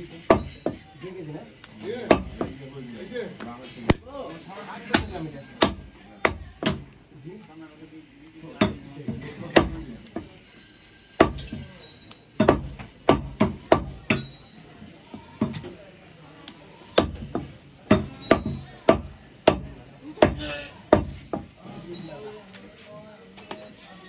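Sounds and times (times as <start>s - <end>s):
cleaver chopping on wooden block: 0.3s - 0.8s, 2.0s - 2.6s, 4.9s - 6.9s, 8.6s - 10.3s, 12.4s - 14.3s, 16.9s - 21.5s.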